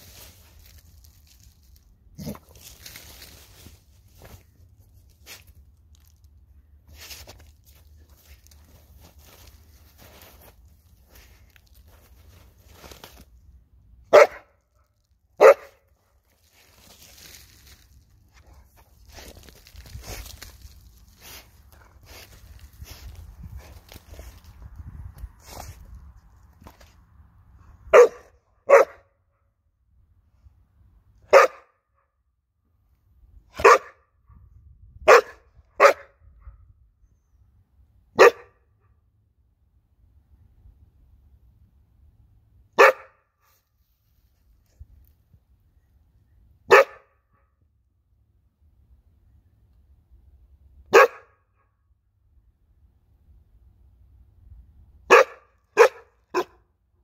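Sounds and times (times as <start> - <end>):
scuffling in dirt and leaves: 0.0 - 14.2, 14.9 - 27.1
puppy barking: 14.1 - 14.6, 15.4 - 15.9, 27.9 - 29.1, 31.3 - 31.8, 33.5 - 34.1, 35.1 - 36.6, 38.2 - 38.6, 42.8 - 43.2, 46.7 - 47.2, 50.9 - 51.4, 55.1 - 56.6.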